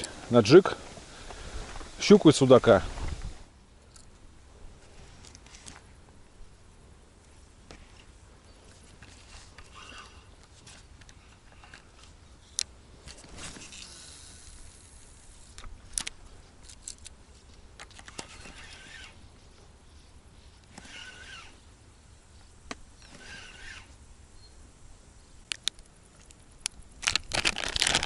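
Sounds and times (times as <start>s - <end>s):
fishing reel winding: 13.6s - 17.1s, 17.9s - 19.2s
sharp clicks: 25.4s - 27.3s.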